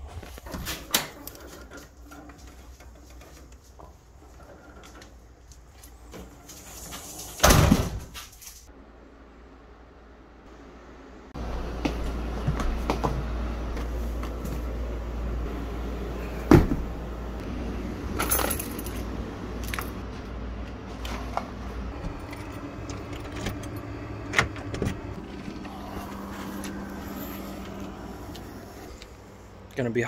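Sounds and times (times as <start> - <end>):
low steady rumble: 8.7 - 30.0
keys jangling: 18.2 - 19.0.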